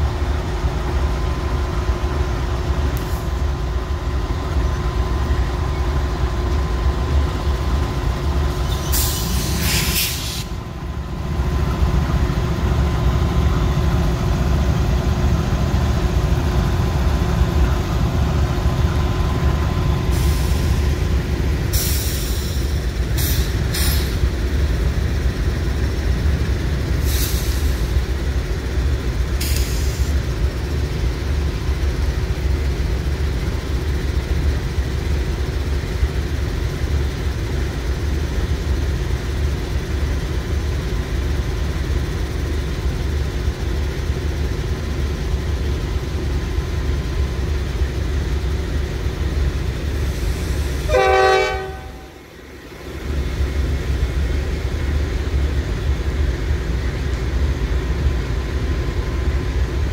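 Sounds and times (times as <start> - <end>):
freight train rumbling past: 0.0 - 59.9
train horn blast: 50.9 - 52.2.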